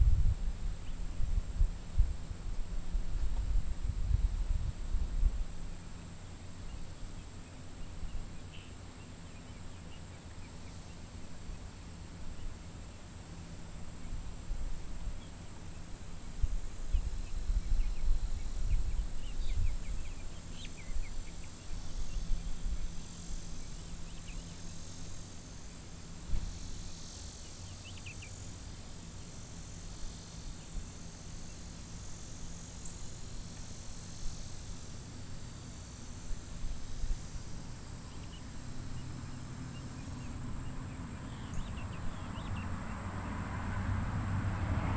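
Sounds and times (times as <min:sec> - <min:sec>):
low rumble on microphone: 0:00.0 - 0:05.8, 0:16.2 - 0:24.6
insects droning: 0:00.0 - 0:44.9
bird chirps: 0:41.3 - 0:42.7.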